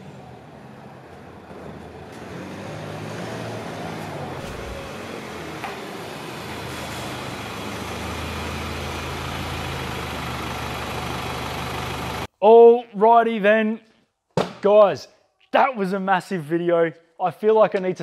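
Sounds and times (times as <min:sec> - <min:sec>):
car engine running: 0:04.3 - 0:12.3.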